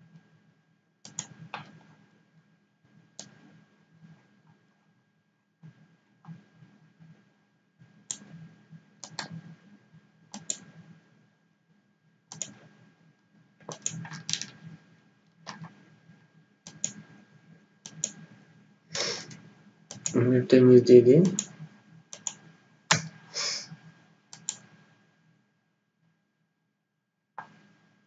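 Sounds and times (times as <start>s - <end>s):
mouse and keyboard clicks: 1.1s - 1.8s, 3.2s - 3.4s, 9.0s - 9.4s, 10.4s - 10.7s, 12.3s - 12.6s, 13.6s - 14.6s, 15.4s - 15.8s, 16.7s - 17.0s, 17.9s - 18.2s, 19.9s - 20.2s, 21.2s - 23.2s, 24.3s - 24.7s.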